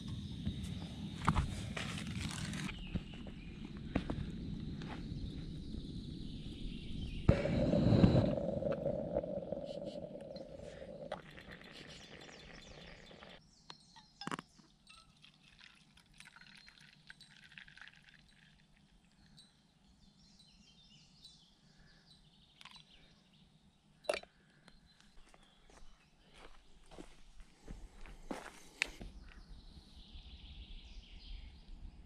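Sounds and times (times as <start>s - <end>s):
faint birdsong: 0.0s - 32.0s
gas burner hissing: 7.0s - 13.4s.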